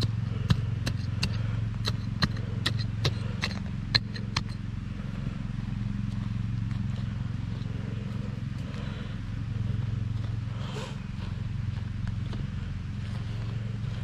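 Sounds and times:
hatchet chopping into soil: 0:00.0 - 0:04.6
steady low hum: 0:00.0 - 0:14.0.

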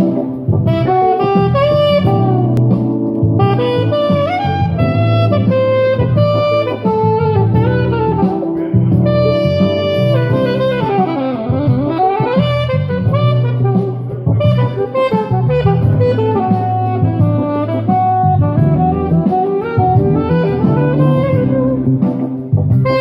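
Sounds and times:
low accompaniment: 0:00.0 - 0:23.0
saxophone improvising jazzy melody: 0:00.0 - 0:23.0.

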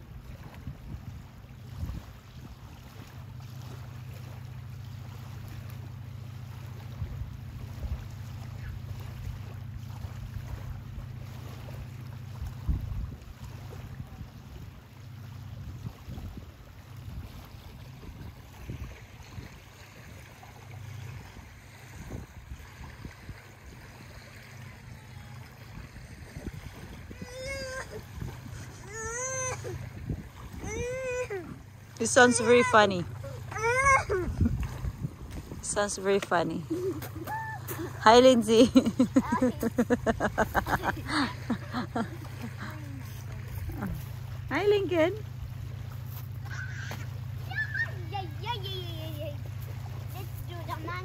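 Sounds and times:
wind on microphone: 0:00.0 - 0:02.6, 0:12.4 - 0:14.7, 0:15.5 - 0:20.3, 0:21.0 - 0:24.2, 0:24.8 - 0:32.2, 0:33.5 - 0:36.0
boat engine drone: 0:00.0 - 0:51.0
small waves lapping on gravel: 0:00.0 - 0:51.0.

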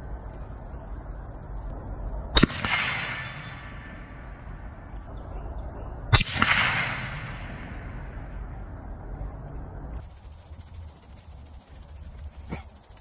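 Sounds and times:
rifle shots with echo: 0:02.4 - 0:04.8, 0:06.1 - 0:08.6.

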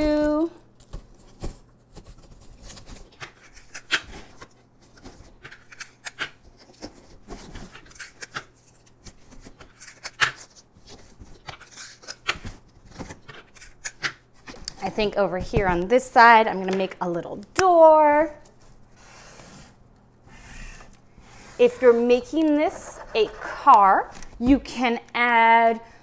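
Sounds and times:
cardboard box rustling and scraping: 0:20.3 - 0:24.0.

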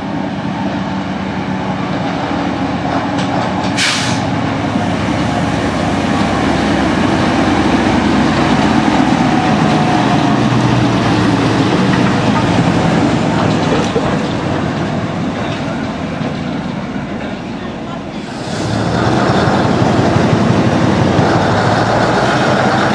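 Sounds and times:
diesel locomotive engine running: 0:00.0 - 0:22.9
brief hiss: 0:03.8 - 0:04.3.

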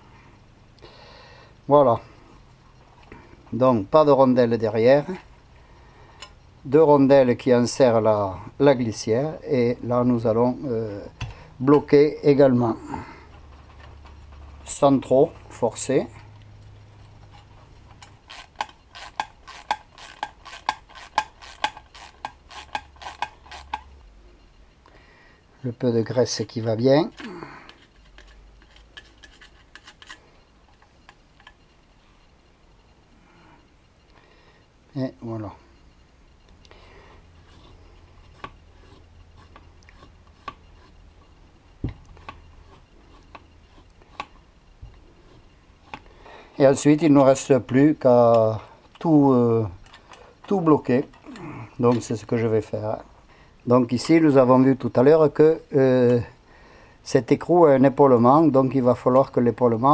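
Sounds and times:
faint low hum: 0:00.0 - 0:59.9
parts and tools clicking: 0:16.3 - 0:24.0, 0:27.1 - 0:31.7, 0:47.0 - 0:52.2
wrench clicking: 0:17.9 - 0:23.9.

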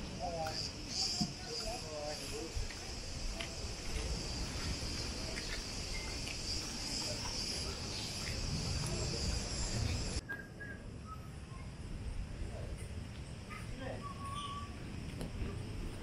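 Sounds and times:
cicadas buzzing: 0:00.0 - 0:10.2
faint bird chirps: 0:05.4 - 0:11.8, 0:13.4 - 0:14.9.

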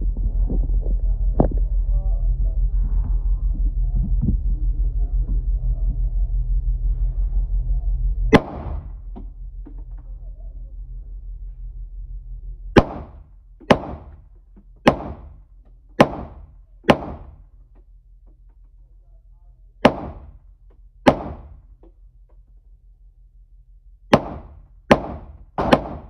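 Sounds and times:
low throbbing hum: 0:00.0 - 0:26.0
handgun shots echoing indoors: 0:08.3 - 0:09.2, 0:12.8 - 0:14.2, 0:14.8 - 0:17.5, 0:19.8 - 0:20.4, 0:21.0 - 0:21.8, 0:24.1 - 0:26.0.

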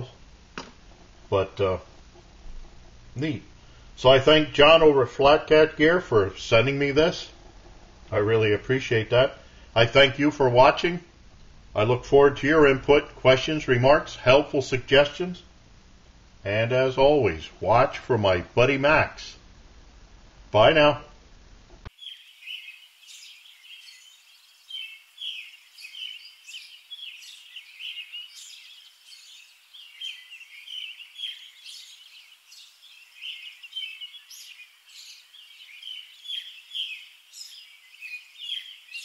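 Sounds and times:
birds chirping: 0:00.0 - 0:00.2, 0:21.9 - 0:39.0.

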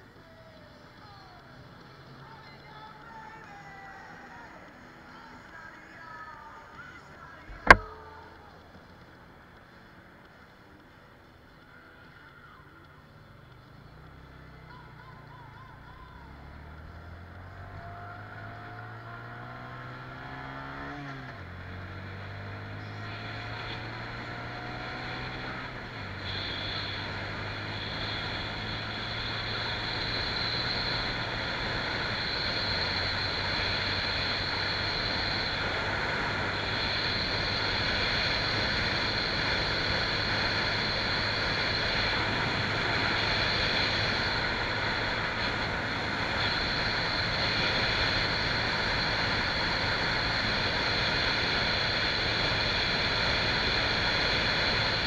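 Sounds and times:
wind and road rush: 0:00.0 - 0:55.0
motorcycle engine accelerating: 0:07.4 - 0:09.8, 0:13.5 - 0:55.0.

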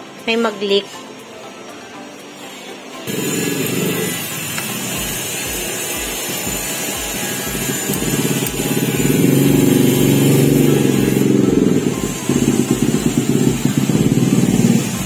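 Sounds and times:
music with heavy bass beat: 0:03.1 - 0:15.0.

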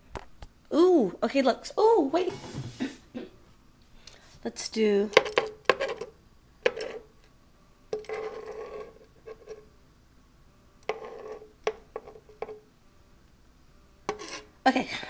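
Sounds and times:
utensil scraping nonstick pan: 0:05.1 - 0:07.1, 0:08.0 - 0:09.7, 0:10.8 - 0:12.6, 0:14.1 - 0:14.5.

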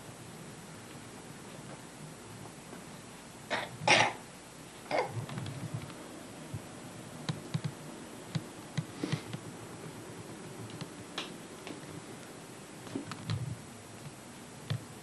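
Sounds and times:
steady hiss: 0:00.0 - 0:15.0
faint clicks and soft knocks: 0:05.2 - 0:06.0, 0:06.6 - 0:14.9.

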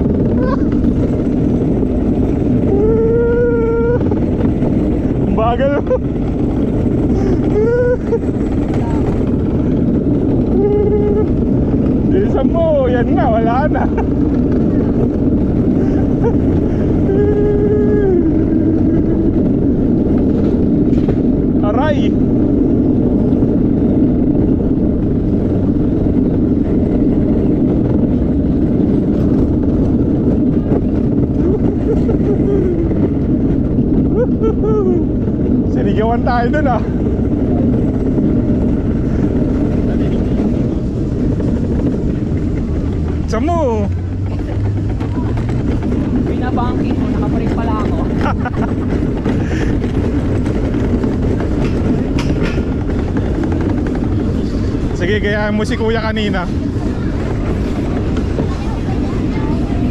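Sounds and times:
cart wheels rumbling on concrete: 0:00.0 - 0:59.9
sharp clacks: 0:47.0 - 0:54.8.

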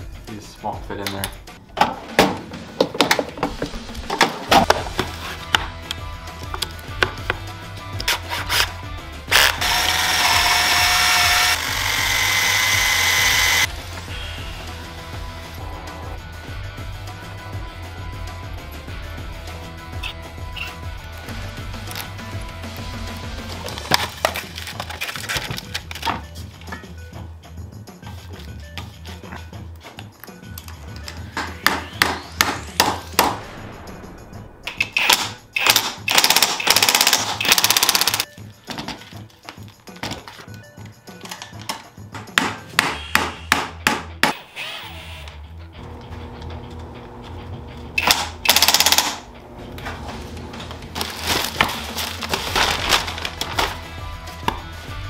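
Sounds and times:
background music: 0:00.0 - 0:55.0
cordless drill whining in metal: 0:09.3 - 0:13.7, 0:44.4 - 0:46.1.

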